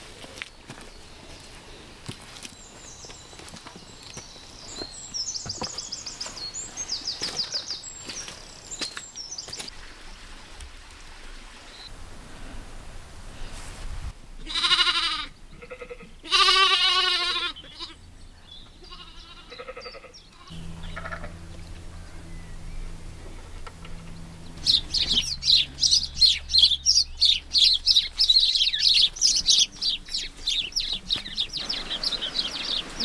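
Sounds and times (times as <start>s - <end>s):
sheep bleating: 14.4s - 18.0s, 18.8s - 21.3s.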